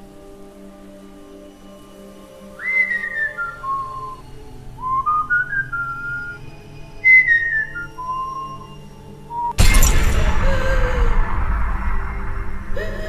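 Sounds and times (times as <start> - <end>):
faint background music: 0.0 - 11.3
person whistling a tune: 2.6 - 4.2, 4.8 - 9.6.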